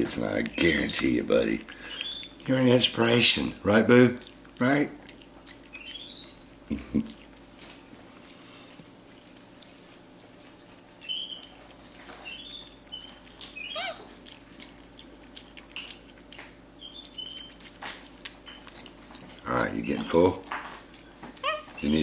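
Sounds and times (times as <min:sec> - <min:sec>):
chewing and lip smacking: 0:00.0 - 0:22.0
monkey chirping: 0:01.8 - 0:03.3, 0:05.6 - 0:06.6, 0:11.0 - 0:11.6, 0:12.2 - 0:14.4, 0:16.7 - 0:17.7, 0:18.4 - 0:18.9, 0:21.4 - 0:22.0.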